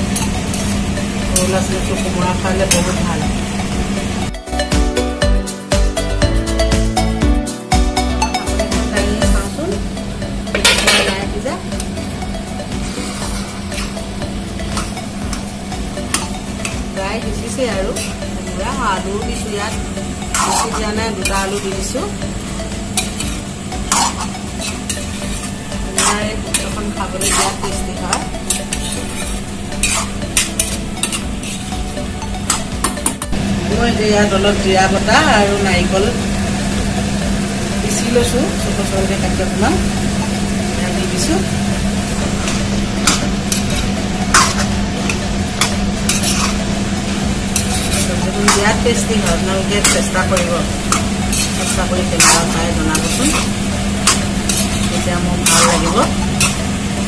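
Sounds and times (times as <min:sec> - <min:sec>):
light frying sizzle: 0:00.0 - 0:04.3, 0:09.0 - 0:57.0
steel spoon scraping a pan: 0:00.1 - 0:01.6, 0:12.8 - 0:14.0, 0:17.4 - 0:18.3, 0:20.3 - 0:22.1, 0:22.9 - 0:31.8, 0:42.3 - 0:46.7, 0:47.5 - 0:56.7.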